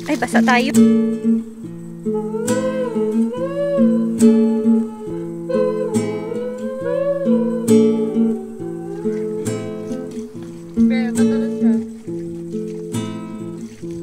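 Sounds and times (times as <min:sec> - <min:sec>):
acoustic guitar strumming: 0:00.0 - 0:14.0
person humming a melody: 0:02.0 - 0:10.9.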